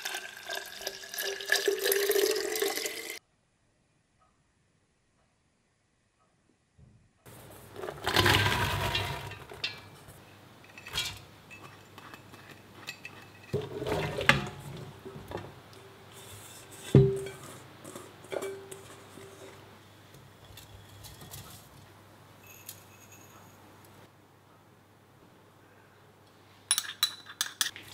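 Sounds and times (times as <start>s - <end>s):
chopped vegetables rattling into pot: 7.7s - 10.0s
metal bowl knocking pot rim: 16.8s - 19.6s.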